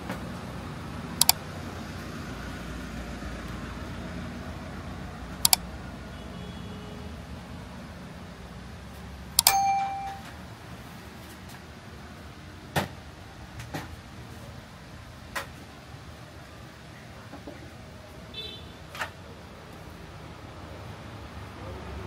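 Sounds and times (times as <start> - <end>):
sharp metallic ding: 9.4 - 10.3.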